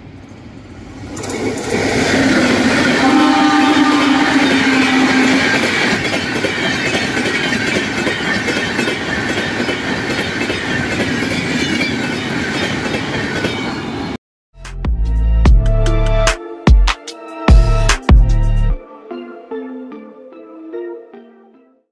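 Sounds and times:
train wheels rumbling on rail: 0.0s - 14.2s
wheels clacking over rail joints: 1.0s - 13.9s.

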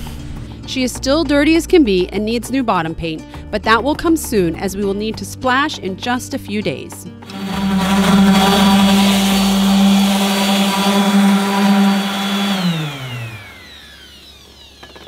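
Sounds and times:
orbital sander running: 7.2s - 15.0s
sander motor spinning down: 7.2s - 15.0s.

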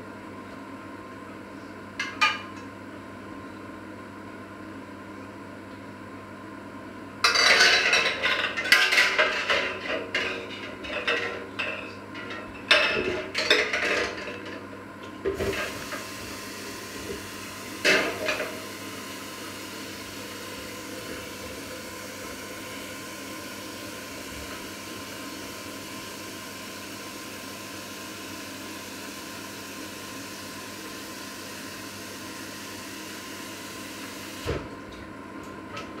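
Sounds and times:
pots and lids clattering: 7.3s - 14.6s.

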